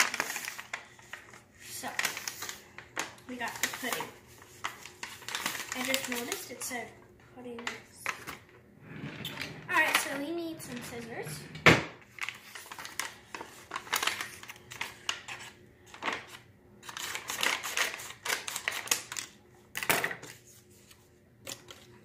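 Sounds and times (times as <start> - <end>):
packet crinkling: 0.0 - 6.6, 12.1 - 15.5.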